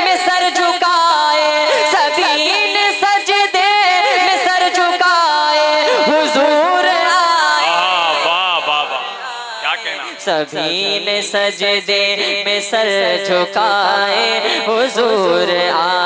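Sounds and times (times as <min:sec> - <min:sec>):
boy singing into a microphone: 0:00.0 - 0:16.0.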